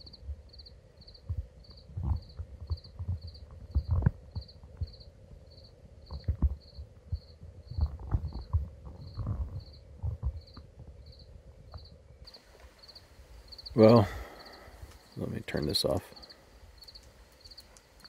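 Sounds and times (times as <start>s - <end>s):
cricket chirping: 0.0s - 18.0s
low thumps and knocks: 1.2s - 5.1s, 6.0s - 11.0s.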